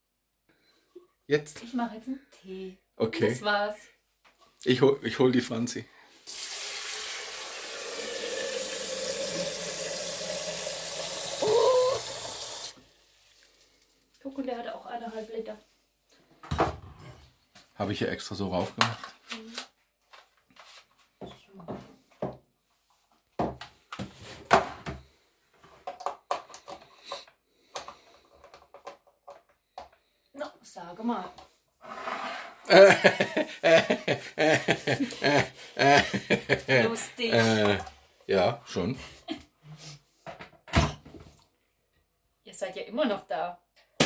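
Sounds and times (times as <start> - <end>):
tap water filling a kettle: 6.2 - 13.9.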